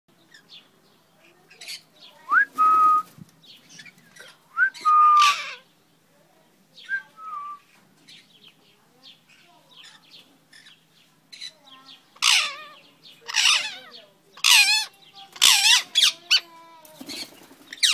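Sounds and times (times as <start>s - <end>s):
rustles: 1.1s - 4.8s.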